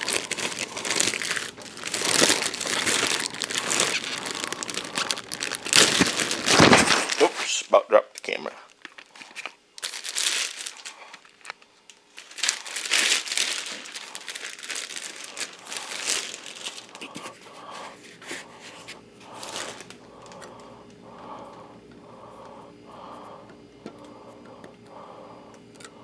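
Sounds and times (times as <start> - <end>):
handling noise: 0.0 - 7.5
packaging crinkling: 0.0 - 7.6, 8.2 - 21.6.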